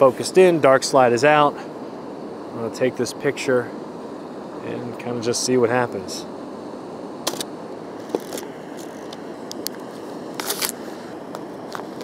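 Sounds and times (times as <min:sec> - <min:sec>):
steady background hiss: 0:00.0 - 0:12.0
camera shutter clicks: 0:07.3 - 0:07.5.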